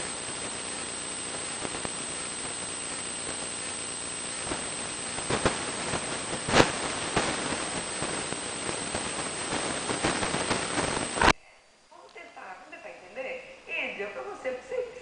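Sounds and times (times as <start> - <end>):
sharp crackles: 0.0 - 11.4
thin high whine: 0.0 - 11.6
recording static hiss: 0.0 - 15.0.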